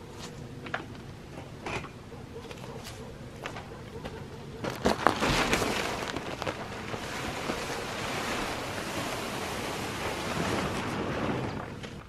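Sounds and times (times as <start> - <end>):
plastic tarp rustling and crackling: 4.6 - 12.0.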